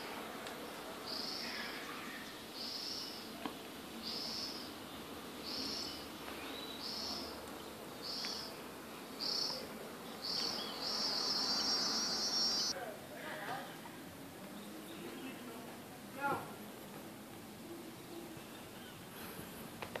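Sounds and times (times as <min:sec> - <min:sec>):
cicada buzzing: 0:04.1 - 0:06.1, 0:08.0 - 0:12.7.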